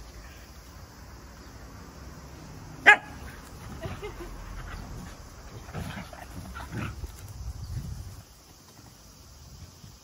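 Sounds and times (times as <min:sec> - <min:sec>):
dog barking sharply: 0:02.8 - 0:03.2
dogs growling and yipping: 0:03.2 - 0:07.4.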